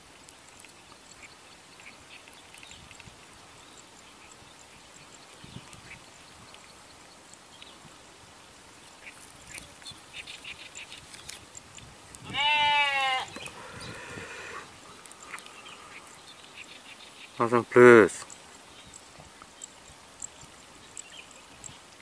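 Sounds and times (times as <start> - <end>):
faint ticks: 0.0 - 8.0, 8.7 - 12.4, 13.2 - 17.4, 18.2 - 22.0
loud animal call: 12.3 - 16.1
faint drawn-out animal call: 12.3 - 16.7.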